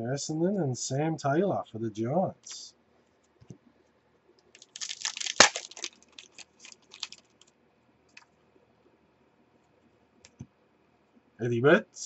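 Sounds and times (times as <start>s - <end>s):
cards clicking: 4.6s - 7.2s
foil wrapper tearing and crinkling: 4.6s - 7.4s.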